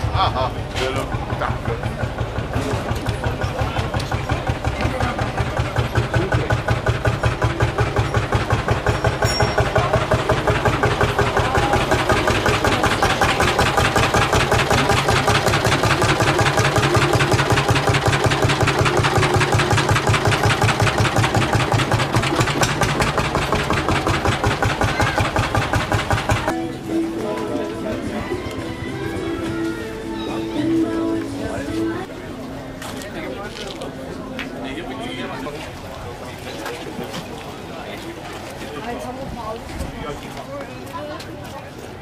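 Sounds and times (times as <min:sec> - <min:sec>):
two-stroke tractor engine running: 0:00.0 - 0:26.6.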